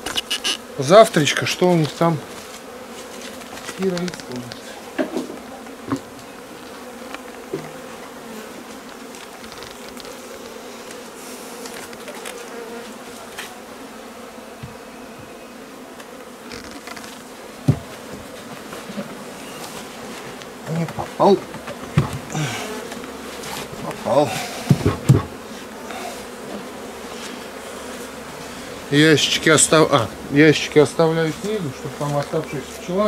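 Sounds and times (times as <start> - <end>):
honeybees buzzing: 0.0 - 33.0
sharp knocks: 17.6 - 18.3, 20.6 - 22.3, 24.6 - 25.4.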